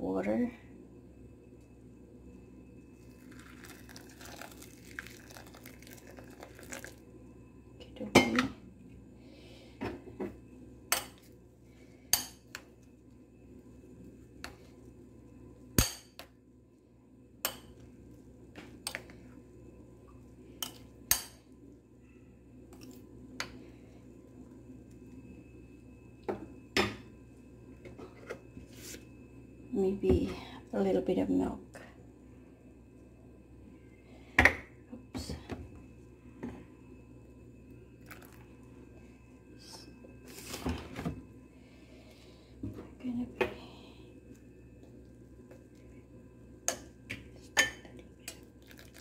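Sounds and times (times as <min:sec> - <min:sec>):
hot water pouring into bowl: 0:03.0 - 0:07.1, 0:38.0 - 0:38.6, 0:48.3 - 0:49.0.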